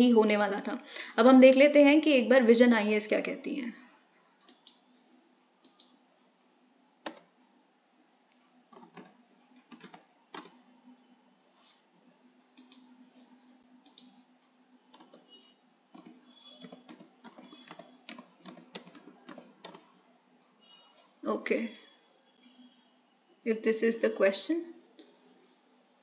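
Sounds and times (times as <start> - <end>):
computer keyboard typing: 4.5 - 4.8, 5.6 - 6.0, 7.0 - 7.3, 8.7 - 10.6, 12.6 - 12.9, 13.8 - 14.2, 14.9 - 20.0.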